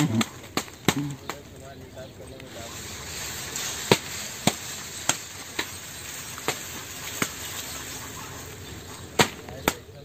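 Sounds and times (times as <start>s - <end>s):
blade chopping palm: 3.8s - 5.8s, 6.4s - 7.4s, 9.2s - 9.8s.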